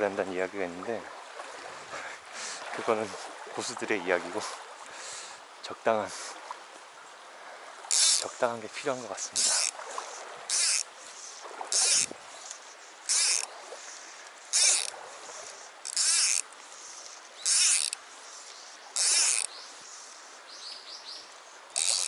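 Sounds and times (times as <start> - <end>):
shallow stream rushing: 0.0 - 22.0
fly line swishing through air: 9.2 - 20.2.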